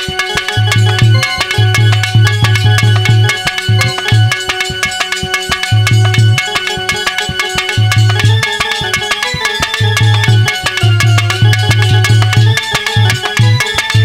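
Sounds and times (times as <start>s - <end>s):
hand drum fast rhythm: 0.0s - 14.0s
held melody notes: 0.0s - 14.0s.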